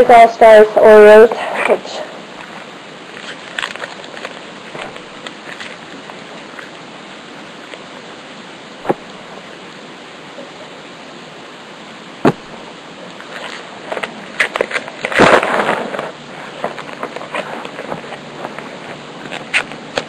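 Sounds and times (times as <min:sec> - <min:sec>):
steady hiss: 0:00.0 - 0:20.0
trading cards rustling: 0:03.1 - 0:06.7.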